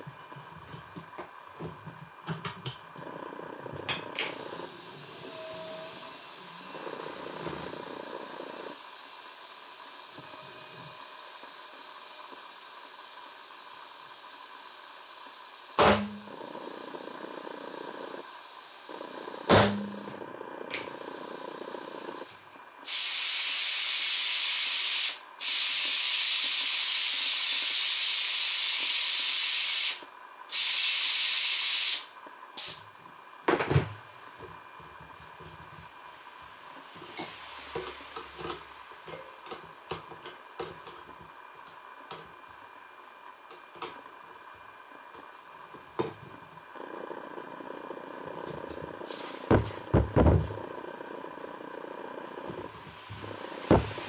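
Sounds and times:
compressed air hissing: 0:03.1 - 0:32.9, 0:46.7 - 0:54.0.

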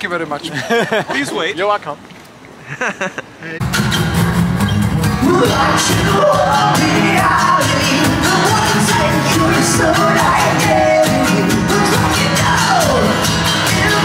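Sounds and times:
strummed acoustic guitars: 0:03.6 - 0:14.0
man singing into microphone: 0:05.2 - 0:14.0.

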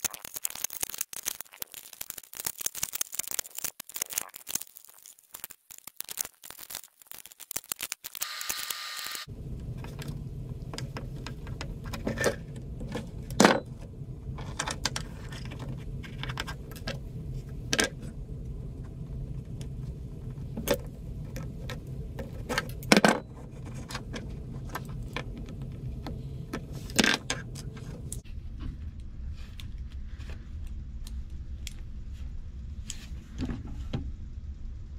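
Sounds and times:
low hum: 0:08.3 - 0:34.9.

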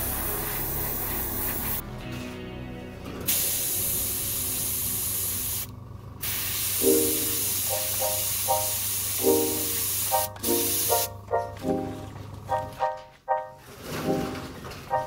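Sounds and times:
airbrush hissing: 0:00.0 - 0:01.8, 0:03.3 - 0:11.1.

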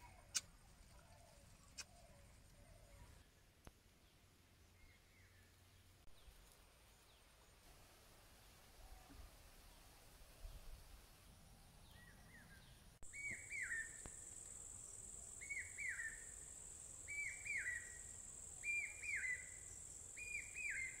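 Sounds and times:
high insect trill: 0:13.1 - 0:21.0.

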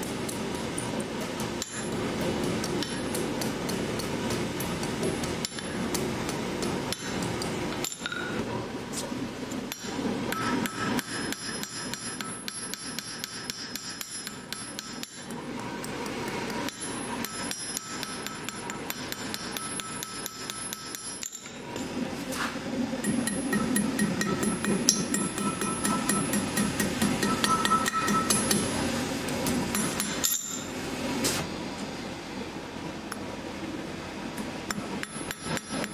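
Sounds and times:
hammer striking on anvil: 0:09.7 - 0:15.2, 0:16.7 - 0:21.4, 0:23.0 - 0:28.7, 0:29.7 - 0:30.7, 0:34.7 - 0:35.9.

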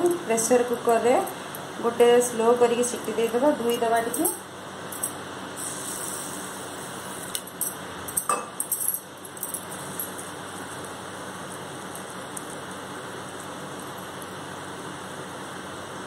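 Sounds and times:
clinks against steel bowl: 0:07.6 - 0:09.6.

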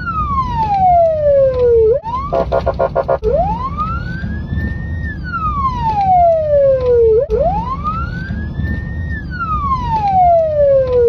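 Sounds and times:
low rumble: 0:00.0 - 0:10.6
police siren wailing: 0:00.0 - 0:11.0.

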